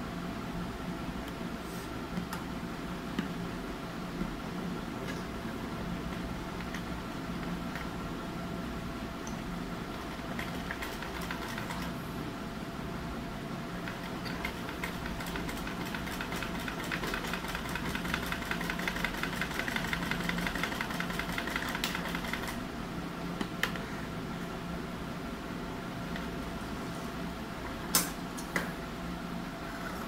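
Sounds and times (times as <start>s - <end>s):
sewing machine clattering: 10.3s - 11.9s, 13.9s - 22.6s.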